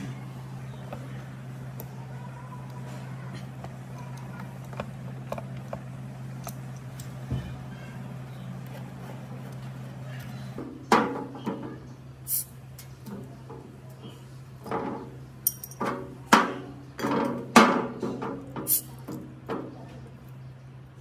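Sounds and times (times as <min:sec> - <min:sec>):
bottle caps clinking and prying: 0:15.4 - 0:15.9.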